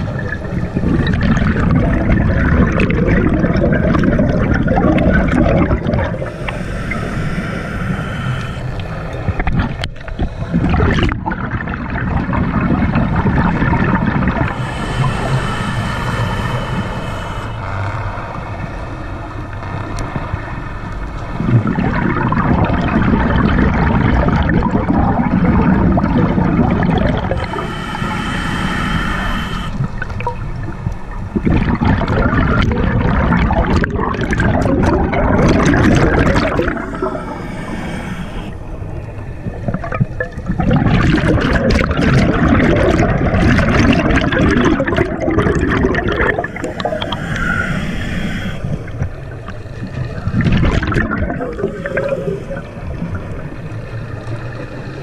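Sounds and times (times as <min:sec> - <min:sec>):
exhaled bubbles underwater: 0:00.0 - 0:55.0
regulator hiss: 0:06.1 - 0:09.4, 0:14.3 - 0:18.2, 0:27.2 - 0:30.0, 0:35.3 - 0:39.6, 0:45.8 - 0:50.2, 0:51.3 - 0:53.7.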